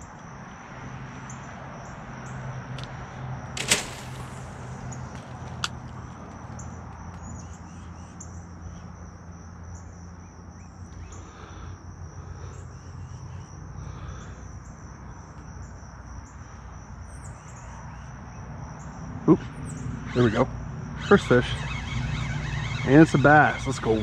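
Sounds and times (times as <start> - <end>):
insects droning: 0.0 - 24.0
sharp click: 3.6 - 6.0
faint pulsing calls: 18.8 - 24.0.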